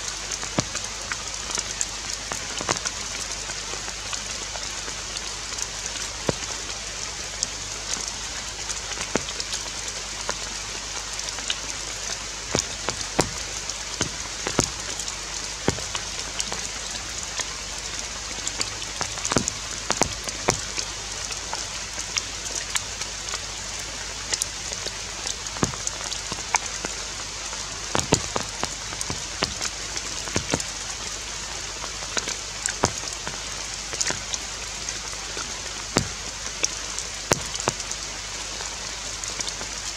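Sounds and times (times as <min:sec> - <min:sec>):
sharp ticks and taps: 0:12.5 - 0:16.7, 0:18.5 - 0:20.8, 0:25.6 - 0:27.0, 0:27.9 - 0:30.8, 0:32.1 - 0:33.3, 0:36.0 - 0:37.9.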